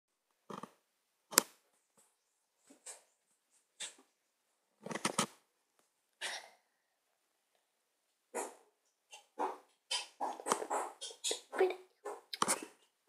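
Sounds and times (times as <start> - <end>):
dog barking: 8.3 - 8.6, 9.4 - 12.3.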